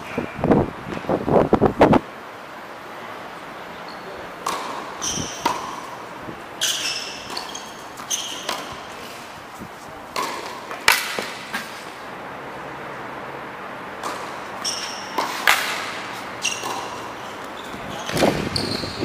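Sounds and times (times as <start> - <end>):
tennis ball hits and bounces: 4.4 - 6.0, 6.6 - 9.3, 10.1 - 11.9, 14.0 - 18.6.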